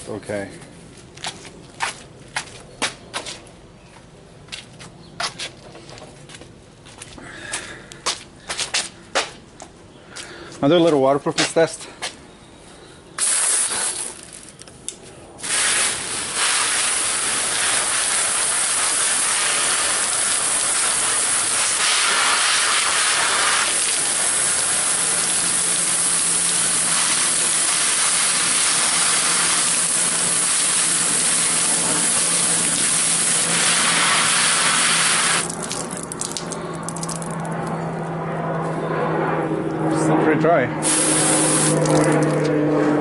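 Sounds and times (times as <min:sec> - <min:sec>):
hose spray nozzle hissing: 0:13.2 - 0:14.4, 0:15.4 - 0:35.8, 0:40.8 - 0:42.3.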